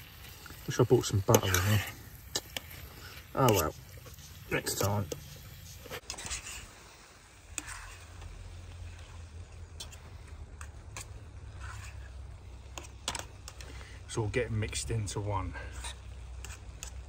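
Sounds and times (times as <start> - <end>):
burner hiss: 0.0 - 17.0
fish frying in a pan: 0.0 - 17.0
utensil scraping a pan: 0.1 - 13.9, 15.5 - 17.0.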